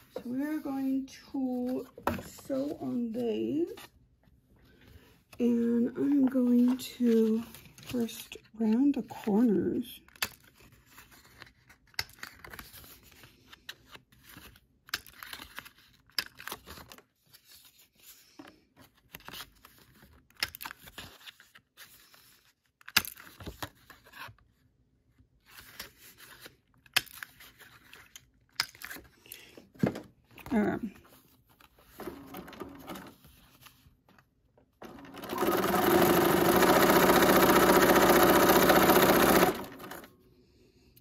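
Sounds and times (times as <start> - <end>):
paper rustling and crinkling: 6.0 - 9.6, 10.3 - 32.1, 32.9 - 34.3.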